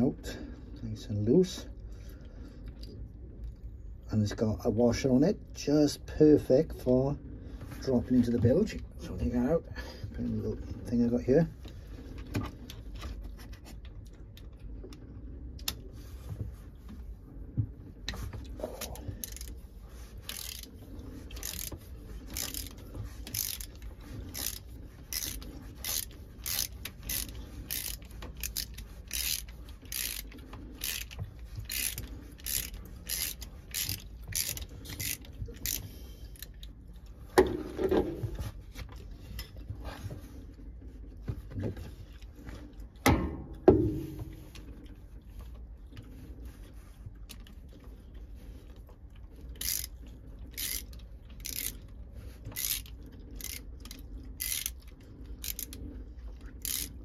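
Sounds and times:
socket ratchet clicking: 25.2 - 35.8, 52.6 - 54.8.

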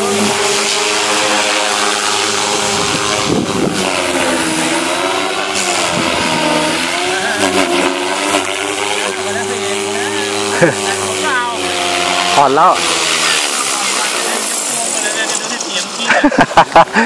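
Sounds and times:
rc helicopter rotor whine: 0.0 - 17.0.

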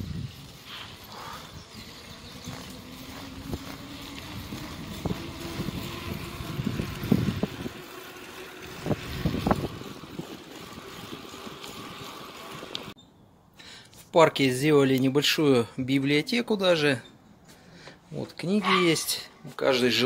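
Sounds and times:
wind buffeting microphone: 0.0 - 12.9
bicycle tyres rolling on asphalt: 0.0 - 13.0.

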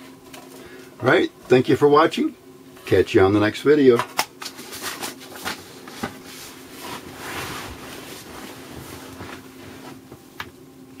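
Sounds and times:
steady low hum: 0.0 - 11.0
soft rustle: 6.3 - 10.1.

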